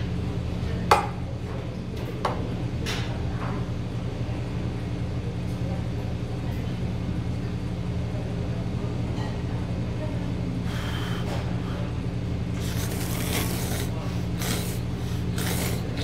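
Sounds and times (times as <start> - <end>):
steady low hum: 0.0 - 16.0
person slurping noodles: 12.6 - 16.0.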